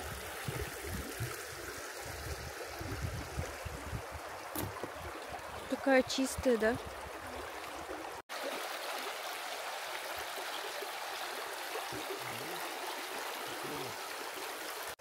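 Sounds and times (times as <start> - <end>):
river water rushing: 4.2 - 15.0.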